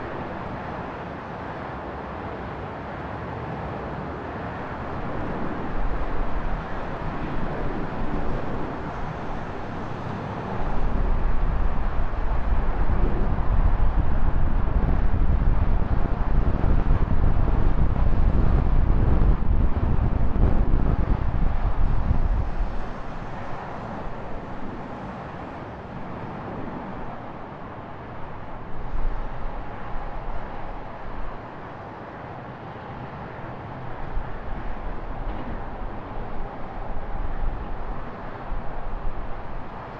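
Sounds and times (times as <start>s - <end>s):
traffic noise: 0.0s - 39.9s
wind on microphone: 4.6s - 31.8s.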